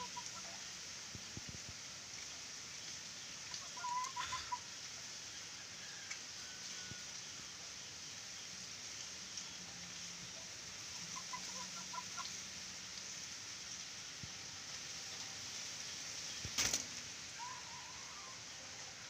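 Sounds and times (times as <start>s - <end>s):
steady background hiss: 0.0s - 19.0s
doves flapping wings: 16.4s - 17.0s.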